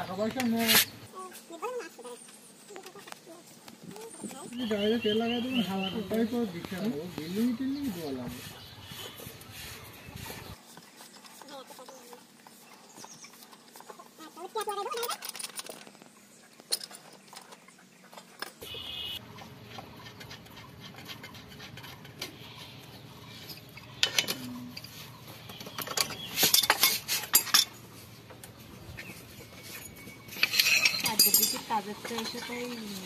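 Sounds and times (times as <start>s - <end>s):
metal clinks and knocks: 23.4s - 28.5s, 29.4s - 33.0s.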